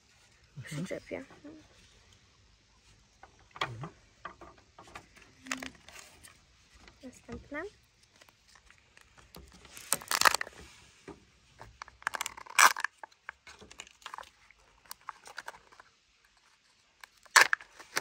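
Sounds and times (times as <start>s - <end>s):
wrapper tearing and crinkling: 8.1s - 10.6s, 11.8s - 15.9s, 17.0s - 18.0s.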